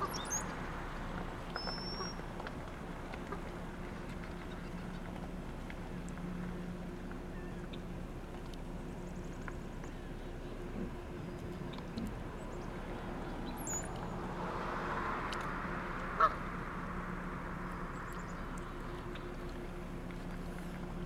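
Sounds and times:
steady low hum: 0:00.0 - 0:21.0
goose call: 0:16.2 - 0:16.4.

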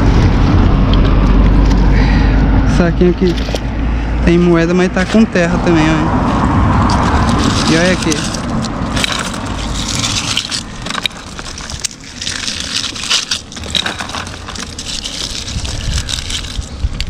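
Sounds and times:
plastic bags crunching: 0:06.0 - 0:17.0.

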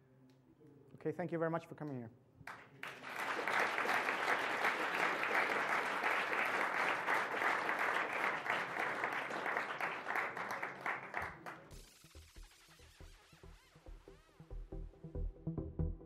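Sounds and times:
audience applauding: 0:02.5 - 0:11.9.

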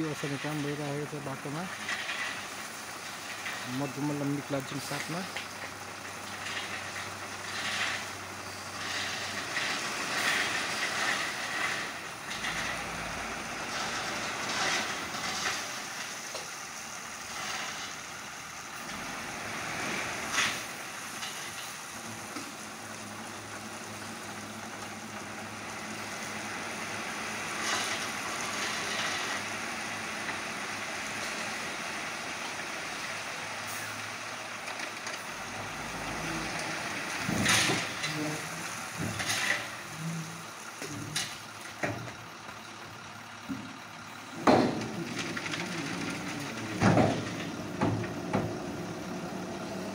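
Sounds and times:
truck engine running: 0:00.0 - 0:49.9.

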